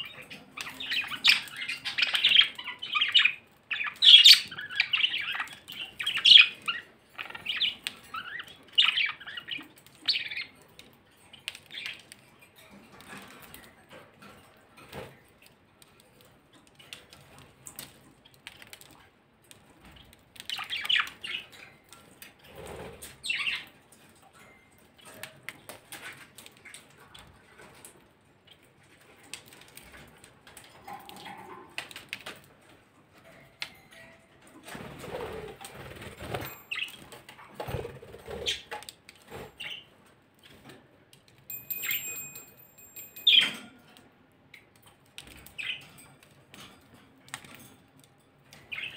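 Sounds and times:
bird chirp: 0.0s - 12.1s, 36.3s - 37.0s, 41.6s - 43.6s, 48.6s - 48.9s
wings fluttering: 34.7s - 39.8s.

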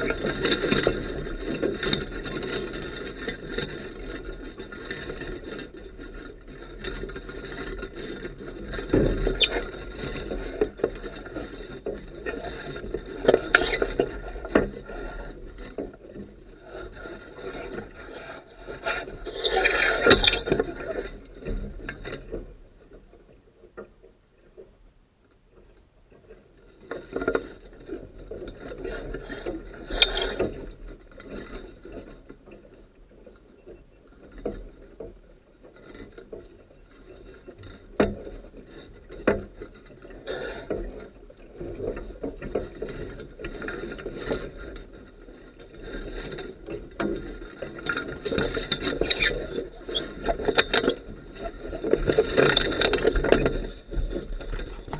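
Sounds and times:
water splashing against boat: 34.2s - 54.9s.

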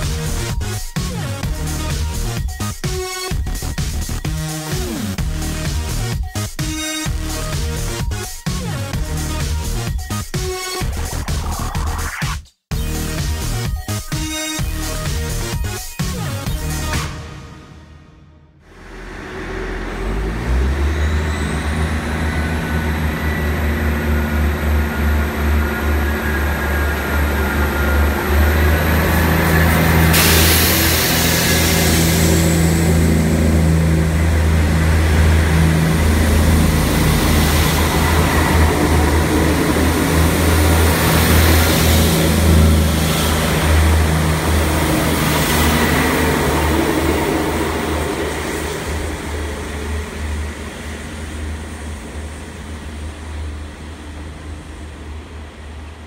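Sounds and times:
diesel train engine drone: 0.0s - 9.9s, 18.6s - 56.0s
high engine whine: 18.6s - 56.0s.

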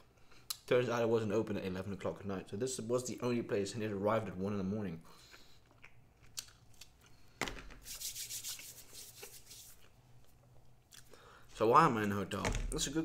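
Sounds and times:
scratchy rubbing and rustling: 7.8s - 10.0s.

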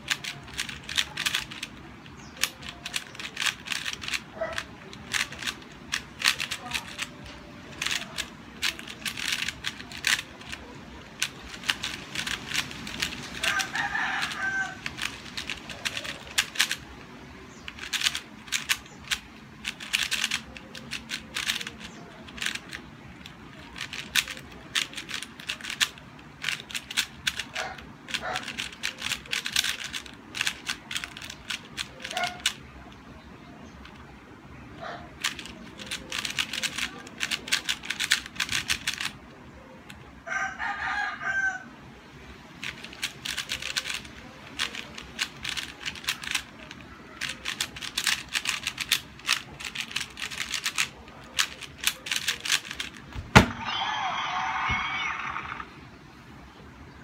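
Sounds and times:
puzzle cube clicking: 0.0s - 16.9s, 17.6s - 33.0s, 35.2s - 39.2s, 42.6s - 53.8s
rooster crowing: 13.4s - 14.9s, 40.3s - 41.7s, 53.5s - 55.7s.

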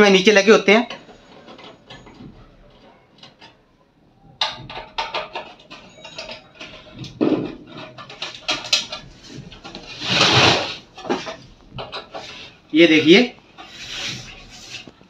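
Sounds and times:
screwdriver scraping metal casing: 13.6s - 15.0s.

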